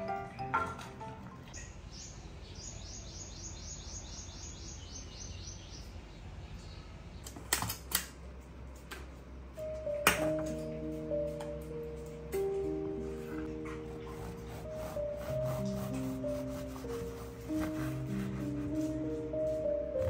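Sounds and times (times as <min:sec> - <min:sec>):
bird chirping: 0:01.6 - 0:07.4.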